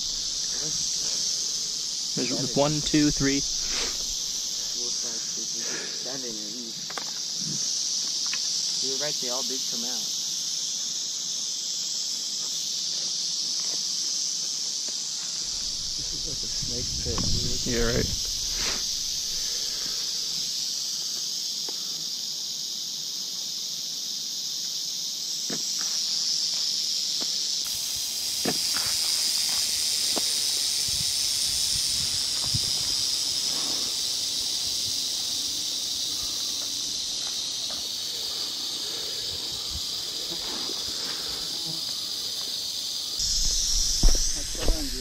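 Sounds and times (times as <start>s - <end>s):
rattlesnake rattling: 0.0s - 45.0s
footsteps rustling in brush: 32.1s - 45.0s.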